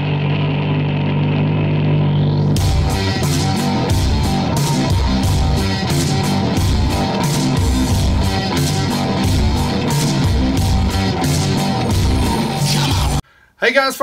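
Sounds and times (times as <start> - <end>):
rock music with guitar: 0.0 - 13.2
driving drum beat: 2.6 - 13.2.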